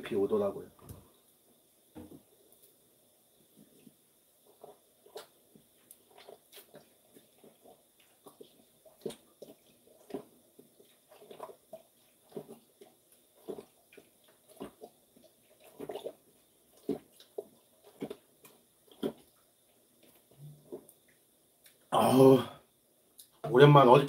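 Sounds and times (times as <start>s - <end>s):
person gulping drink: 4.5s - 19.4s.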